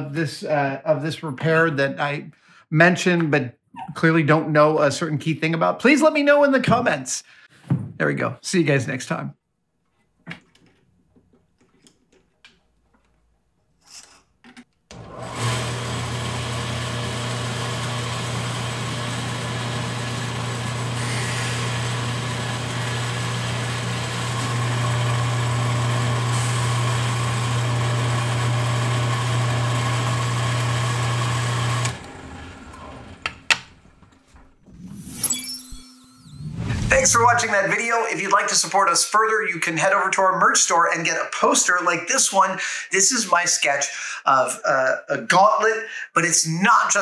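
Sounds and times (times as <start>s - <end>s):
drill press motor hum: 14.9s - 34.9s.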